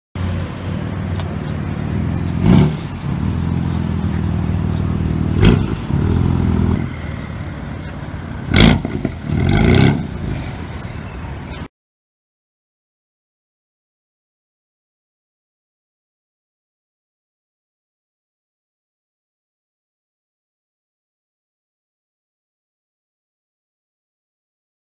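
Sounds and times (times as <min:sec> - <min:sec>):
car exhaust idling and revving: 0:00.2 - 0:11.6.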